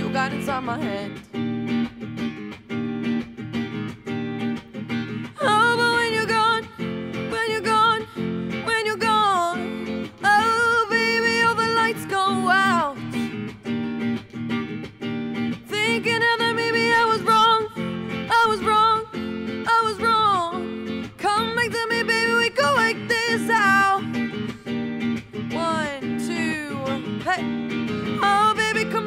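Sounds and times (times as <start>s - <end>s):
woman singing a pop ballad: 0.0s - 1.4s, 5.1s - 13.6s, 15.5s - 29.0s
electric guitar playing chords: 0.0s - 29.0s.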